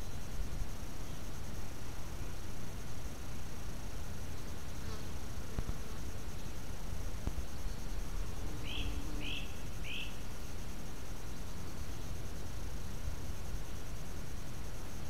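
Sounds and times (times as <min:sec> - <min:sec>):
bird chirping: 0:08.6 - 0:10.1.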